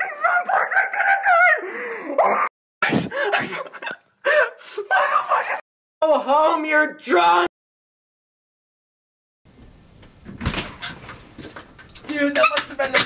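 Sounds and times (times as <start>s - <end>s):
man gasping and crying out: 1.6s - 3.4s.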